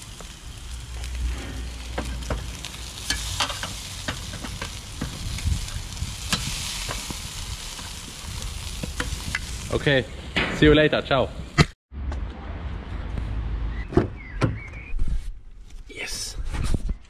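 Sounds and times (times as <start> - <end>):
meat sizzling on grill: 0.0 - 10.4.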